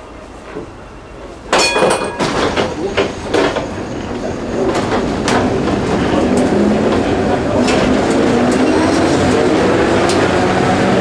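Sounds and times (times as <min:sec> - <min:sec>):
tram rumble: 0:00.0 - 0:11.0
sharp metallic clang: 0:01.5 - 0:02.5
tram running gear clacking: 0:01.5 - 0:10.4.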